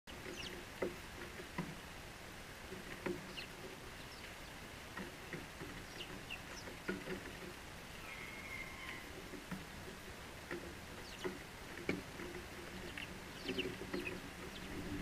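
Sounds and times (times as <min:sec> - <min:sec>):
sparrows chirping: 0:00.1 - 0:00.6, 0:03.2 - 0:04.7, 0:05.8 - 0:07.0, 0:07.9 - 0:09.1, 0:10.9 - 0:11.5, 0:12.4 - 0:15.0.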